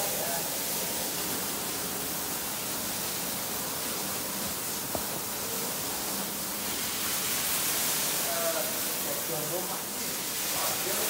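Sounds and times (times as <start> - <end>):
fire extinguisher spraying water: 0.0 - 11.0.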